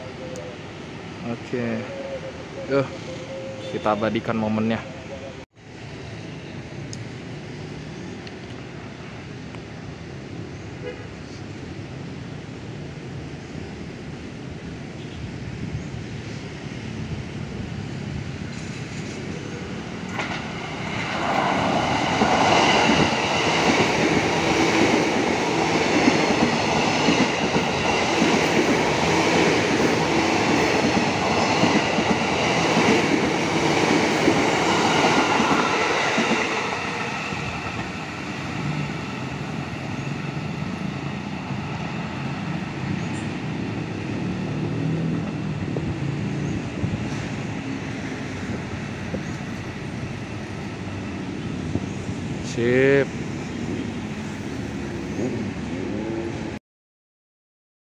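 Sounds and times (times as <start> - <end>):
train wheels running on rails: 17.8 - 55.8.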